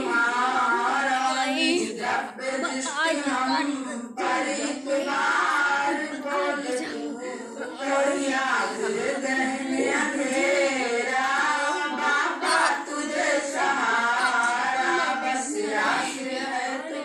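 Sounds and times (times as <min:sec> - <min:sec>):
voices singing together: 0:00.0 - 0:17.0.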